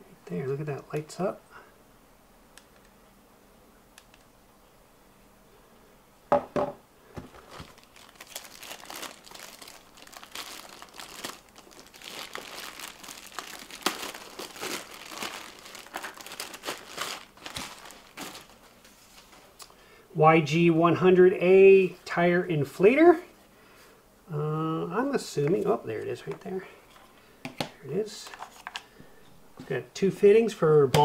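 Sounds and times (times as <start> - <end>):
plastic bag crinkling: 7.2 - 19.6.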